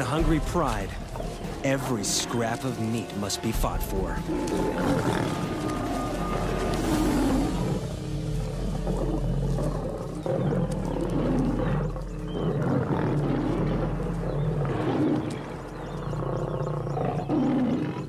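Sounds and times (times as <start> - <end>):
lions snarling and growling: 4.1 - 18.0.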